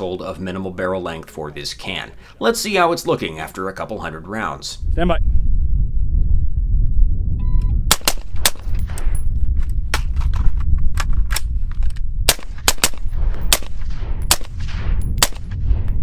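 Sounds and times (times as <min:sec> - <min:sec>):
heavy low rumble: 0:04.1 - 0:16.0
suppressed gunshots: 0:07.9 - 0:09.0, 0:12.2 - 0:16.0.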